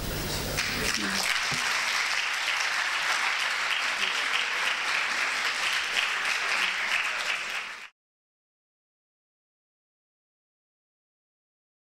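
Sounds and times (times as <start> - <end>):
audience applauding: 0.5 - 7.9.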